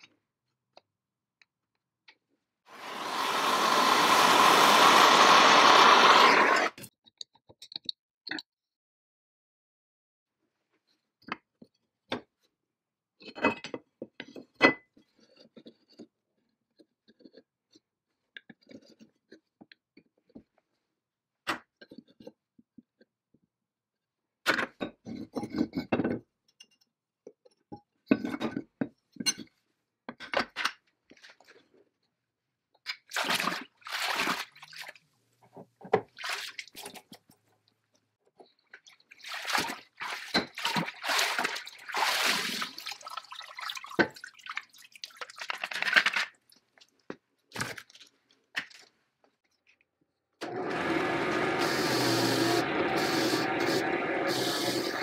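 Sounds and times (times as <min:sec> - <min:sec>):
drill press wire wheel spinning: 0:02.7 - 0:06.8, 0:50.4 - 0:55.0
liquid splashing in a bucket: 0:33.1 - 0:35.0, 0:36.0 - 0:37.2, 0:38.8 - 0:46.2.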